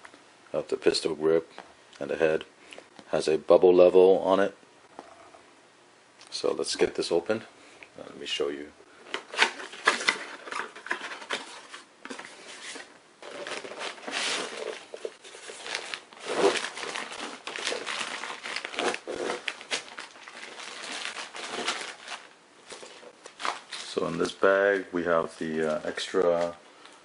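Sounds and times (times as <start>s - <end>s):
plastic crinkling and rustling: 9.0s - 27.0s.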